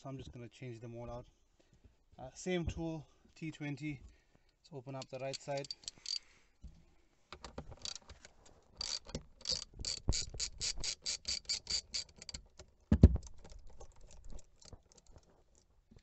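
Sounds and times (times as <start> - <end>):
ratchet pawl clicks: 5.0 - 6.2, 7.8 - 8.0, 8.8 - 12.4.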